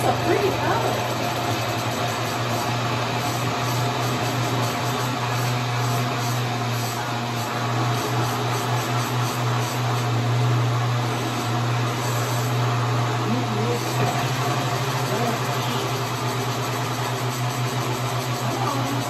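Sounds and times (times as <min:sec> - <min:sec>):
blender motor churning: 0:00.0 - 0:19.0.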